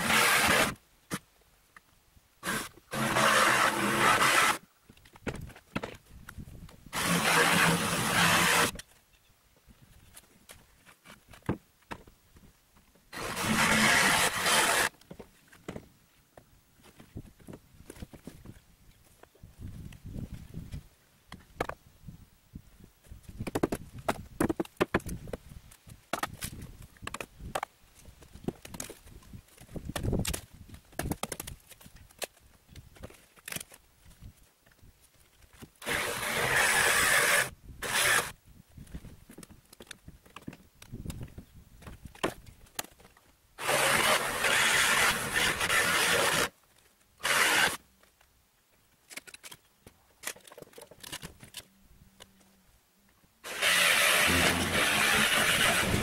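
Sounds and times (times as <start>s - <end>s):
loud rasping noise: 2.4s - 4.6s, 7.0s - 8.8s, 13.2s - 14.9s, 53.4s - 56.0s
power saw running: 53.5s - 56.0s.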